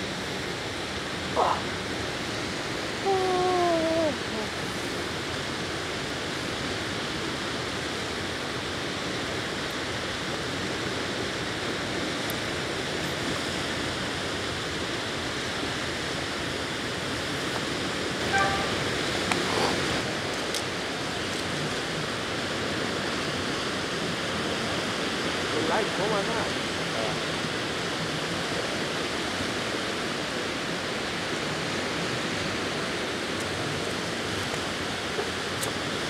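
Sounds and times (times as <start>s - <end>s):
small waves washing on river: 0.0s - 36.0s
brief pitched call: 18.2s - 18.9s.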